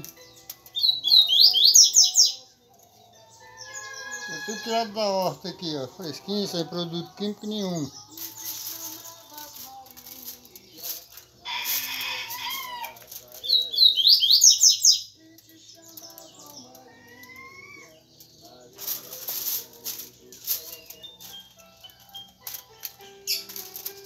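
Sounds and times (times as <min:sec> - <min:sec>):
aluminium foil crinkling: 0:00.0 - 0:00.9, 0:04.5 - 0:13.8, 0:15.1 - 0:24.0
bird chirping: 0:00.0 - 0:11.2, 0:12.2 - 0:24.0.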